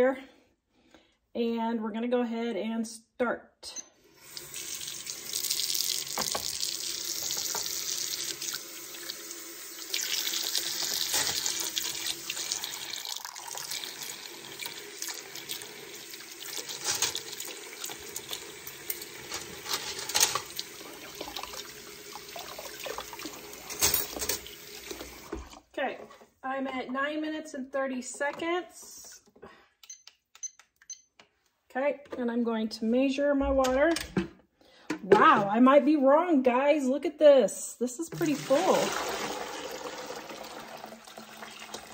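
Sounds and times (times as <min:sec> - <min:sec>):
faucet running into metal pot: 0:04.2 - 0:25.6, 0:38.1 - 0:41.9.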